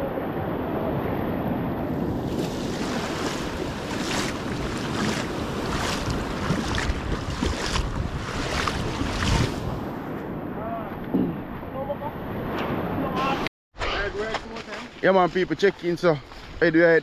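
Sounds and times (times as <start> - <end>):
wind buffeting microphone: 0.0 - 13.4
waves washing over shingle: 0.6 - 9.9.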